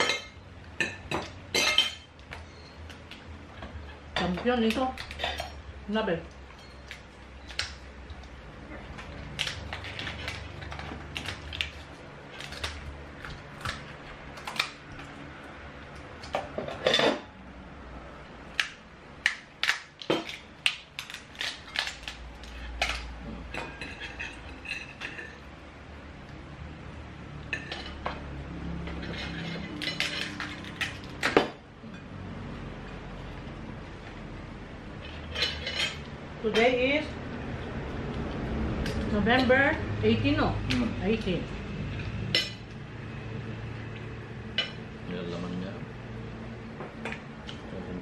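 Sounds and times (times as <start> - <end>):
plates and utensils clinking: 0.0 - 2.7, 16.3 - 17.3, 21.4 - 25.5, 27.5 - 28.2, 28.8 - 32.2, 35.0 - 36.9.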